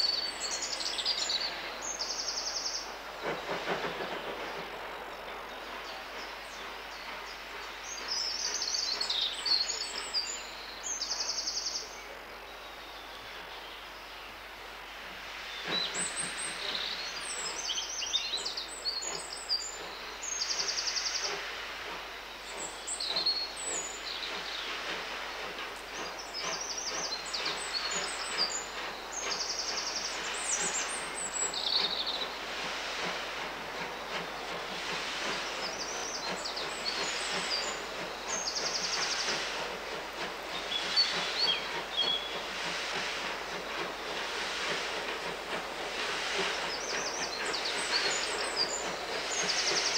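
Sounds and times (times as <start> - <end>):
steam train chuffing: 0.0 - 49.9
birds singing and chirping: 22.4 - 49.9.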